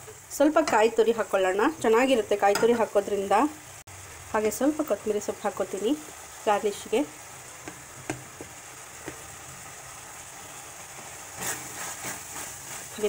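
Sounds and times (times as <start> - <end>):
food sizzling in a pan: 0.0 - 13.0
spoon scraping a pan: 11.3 - 13.0.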